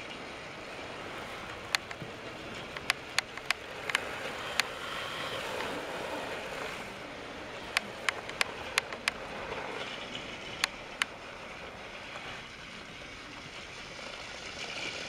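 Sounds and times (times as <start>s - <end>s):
toy train whirring: 0.0s - 15.0s
sharp clicks: 1.7s - 2.0s, 2.7s - 4.7s, 7.7s - 9.2s.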